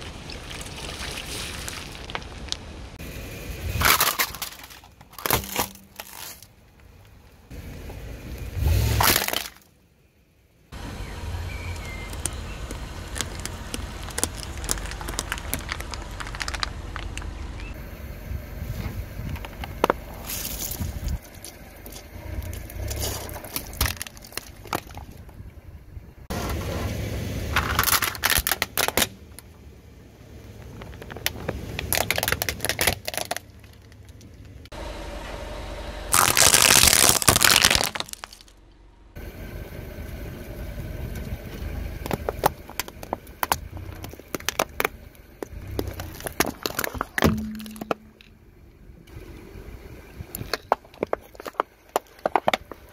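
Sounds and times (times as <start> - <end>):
tyre crushing plastic objects: 3.8 - 6.6, 9.0 - 9.7, 13.1 - 17.4, 22.8 - 25.2, 27.5 - 29.4, 30.6 - 34.6, 36.1 - 38.5, 42.0 - 48.3, 50.4 - 52.9.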